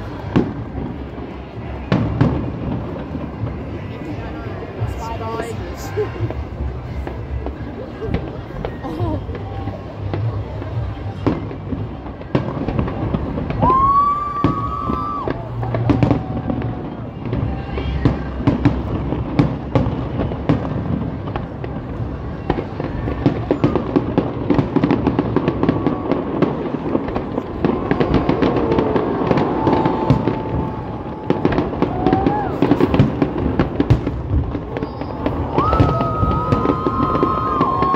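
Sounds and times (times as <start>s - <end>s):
crowd chatter: 0.0s - 37.9s
fireworks bangs and crackles: 0.0s - 37.9s.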